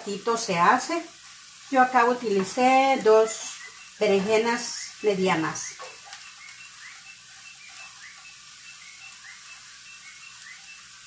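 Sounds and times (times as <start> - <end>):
vegetables sizzling in a pan: 0.0 - 11.0
faint high chirp: 3.3 - 4.1, 4.8 - 11.0.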